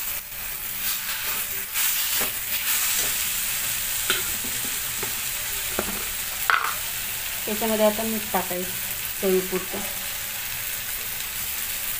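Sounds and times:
food sizzling in oil: 0.0 - 11.9
spatula scraping and tapping pan: 4.0 - 6.8.

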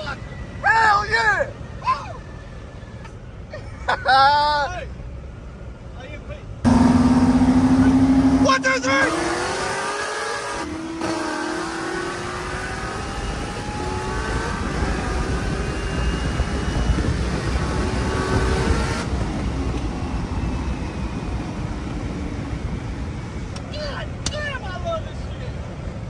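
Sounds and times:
sports car engine accelerating: 6.6 - 23.2.

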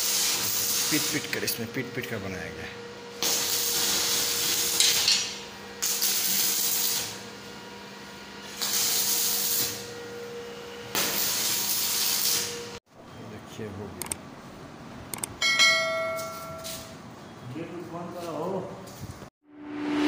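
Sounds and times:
hissing welding arc: 0.0 - 1.6, 3.1 - 7.3, 8.4 - 9.9, 10.9 - 12.8.

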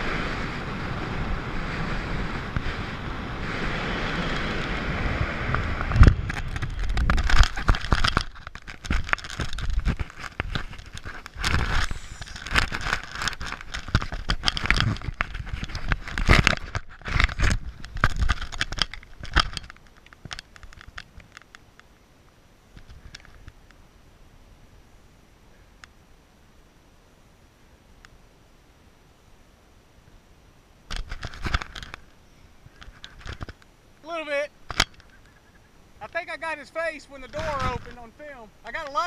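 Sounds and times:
air rushing over microphone: 0.0 - 18.3.

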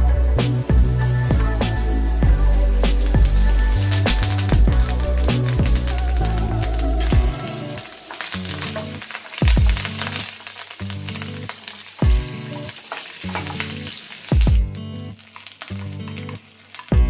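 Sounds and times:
background music with low beat: 0.0 - 7.6, 9.4 - 9.9, 12.0 - 12.3, 14.4 - 14.8
food sizzling in hot oil: 0.0 - 17.0.

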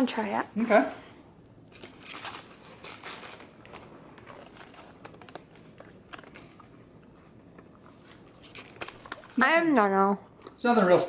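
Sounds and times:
food wrapper crinkling: 1.6 - 9.4.

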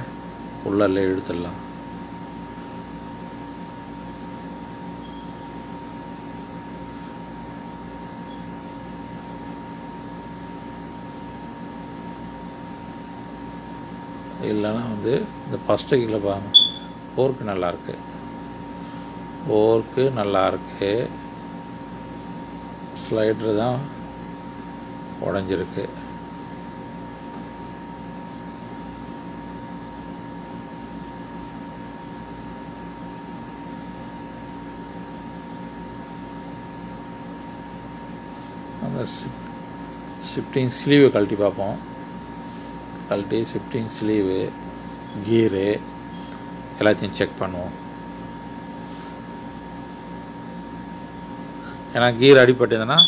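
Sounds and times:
machine hum with high whine: 0.0 - 53.0
faint high whine: 4.2 - 6.2, 8.2 - 8.7, 14.4 - 18.0, 51.6 - 53.0.

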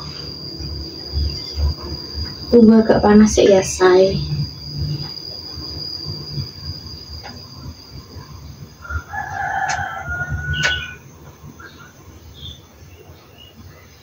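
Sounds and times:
high-pitched whine: 0.0 - 14.0
rooster crowing: 8.7 - 11.1.

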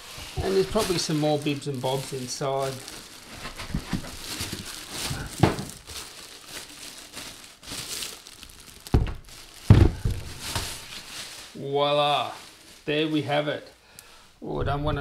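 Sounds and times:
plastic bag crinkling: 0.0 - 13.4
dull thumps: 8.9 - 10.8.

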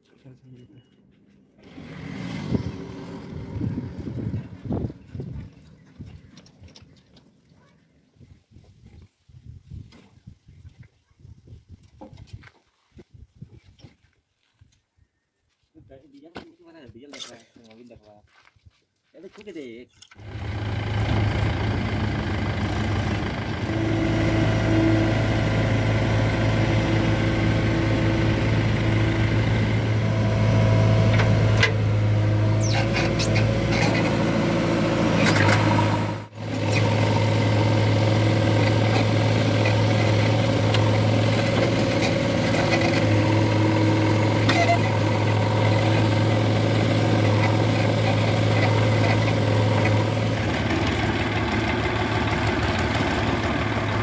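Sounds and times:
diesel engines running: 0.2 - 7.4, 20.1 - 54.0.

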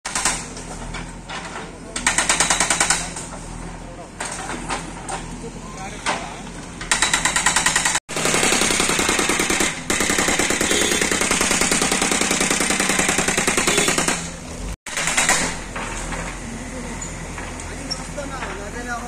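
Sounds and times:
hydraulic breaker hammering rubble: 0.1 - 5.2, 6.8 - 16.4.

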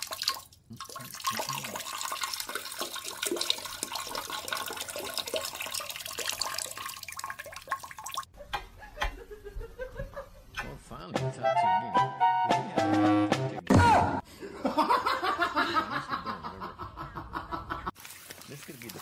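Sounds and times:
toilet flushing: 0.0 - 8.2.

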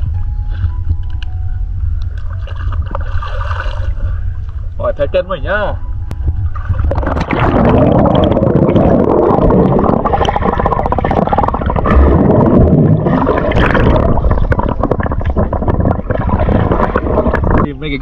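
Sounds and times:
underwater clicking and crackle: 2.0 - 4.6, 6.5 - 17.7
underwater water rushing and bubbling: 2.1 - 4.7, 6.1 - 18.0.

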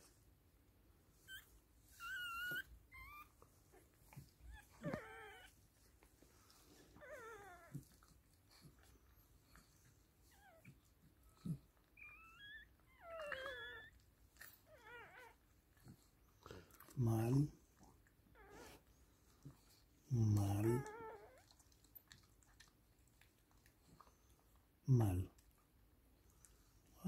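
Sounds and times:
puppies squeaking and whimpering: 1.2 - 3.4, 4.4 - 5.6, 11.4 - 15.4.

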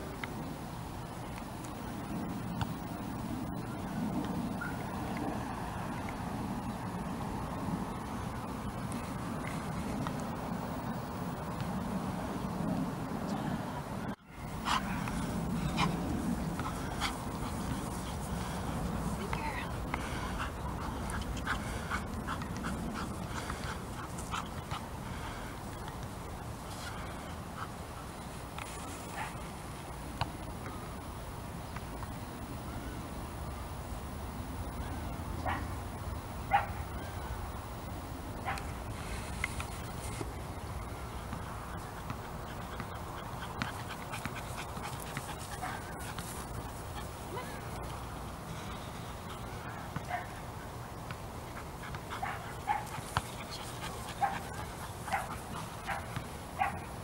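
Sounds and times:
low background noise: 0.0 - 57.0
dog barking: 55.9 - 56.8.

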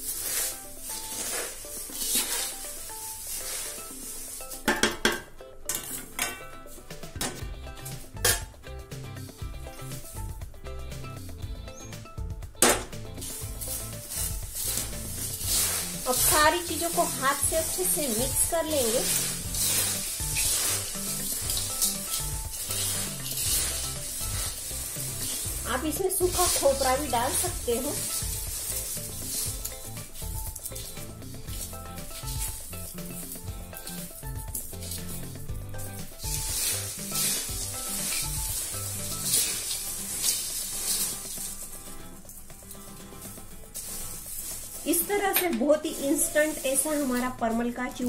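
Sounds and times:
dry snack mix rustling: 0.0 - 4.7, 13.2 - 48.0
spoon clinking and scraping pan: 0.0 - 8.6, 13.3 - 34.2, 34.8 - 41.8.

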